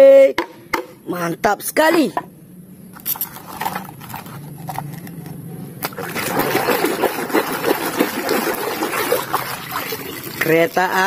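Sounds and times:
muddy water splashing: 0:05.8 - 0:11.0.

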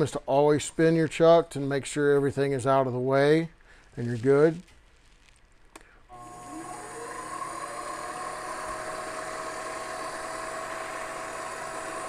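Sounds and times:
lathe motor whine: 0:06.1 - 0:12.0.

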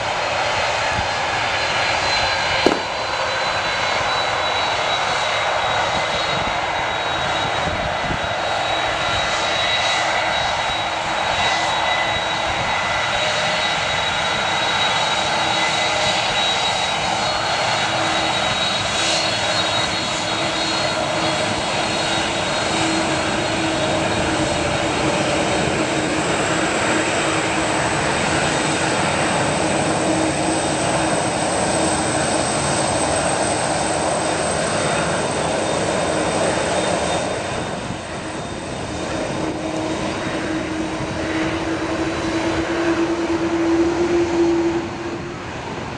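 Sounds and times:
jet engines whining at low power: 0:00.0 - 0:45.9.

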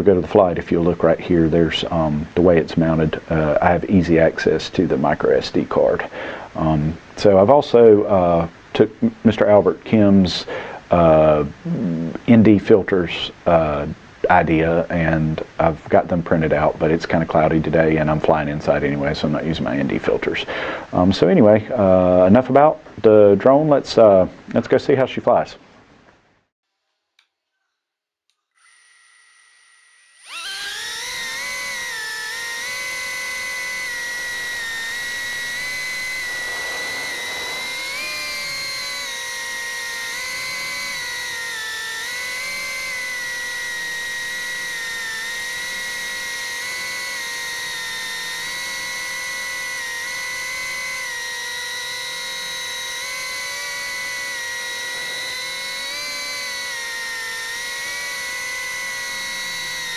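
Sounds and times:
drone motors whining: 0:11.6 - 0:12.2, 0:28.6 - 0:59.9.

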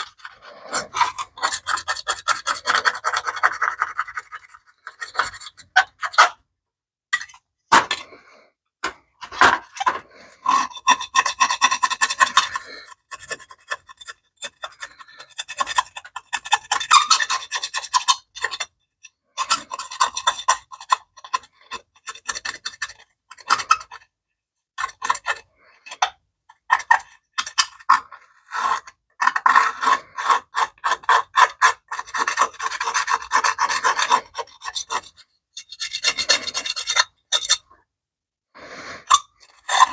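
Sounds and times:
scraper scraping metal: 0:00.0 - 0:06.4, 0:27.9 - 0:37.7.

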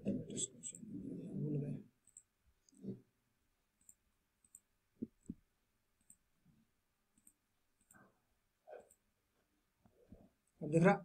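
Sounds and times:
computer mouse clicks: 0:02.0 - 0:03.0, 0:03.7 - 0:06.3, 0:07.1 - 0:08.1, 0:08.8 - 0:09.1.

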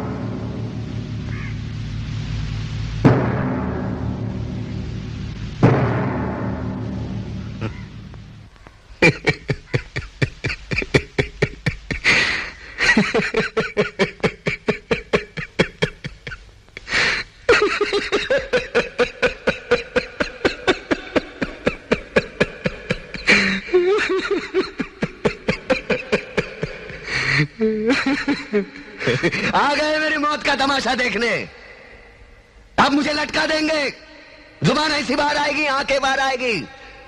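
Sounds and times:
man laughing loudly: 0:09.0 - 0:29.6.

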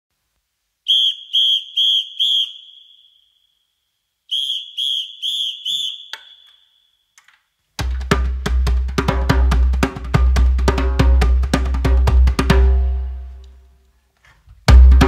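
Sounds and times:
high-pitched whistle blasts: 0:00.8 - 0:07.2
drums: 0:07.8 - 0:13.4, 0:14.2 - 0:15.0.

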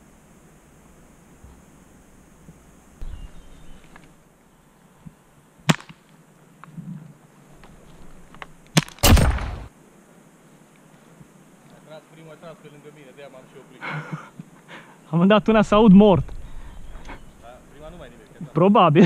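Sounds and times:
airsoft gun cracks: 0:08.7 - 0:09.7
airsoft gun burst: 0:09.0 - 0:09.7.

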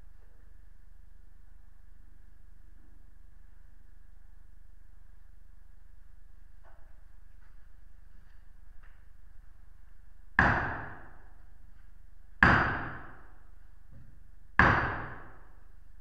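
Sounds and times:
hammer striking a nail: 0:10.4 - 0:11.3, 0:12.4 - 0:13.3, 0:14.0 - 0:15.5.

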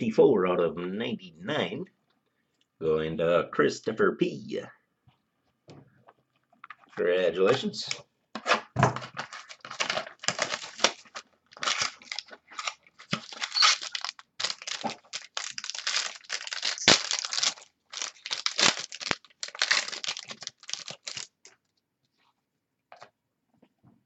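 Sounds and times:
foil wrapper tearing and crinkling: 0:09.2 - 0:21.4.

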